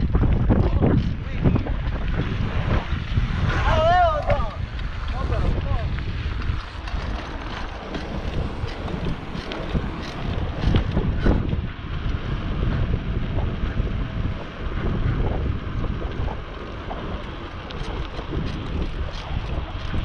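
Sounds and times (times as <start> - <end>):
wind buffeting microphone: 0.0 - 20.0.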